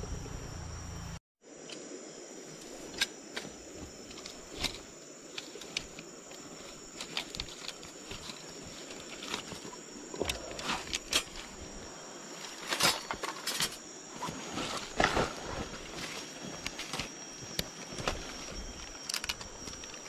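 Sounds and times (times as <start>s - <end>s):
high insect drone: 0.0s - 20.0s
fishing rods and reels clicking: 2.6s - 11.5s, 18.4s - 20.0s.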